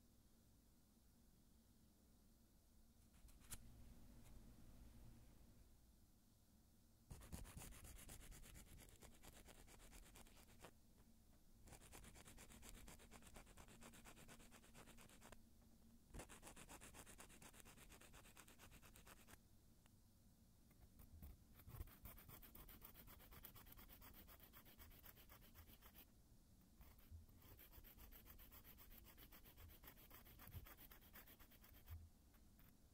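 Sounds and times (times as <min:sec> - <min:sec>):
nail file rasping on fingernails: 0:07.1 - 0:10.7, 0:11.7 - 0:15.4, 0:16.1 - 0:19.4, 0:21.2 - 0:26.1, 0:26.8 - 0:32.0.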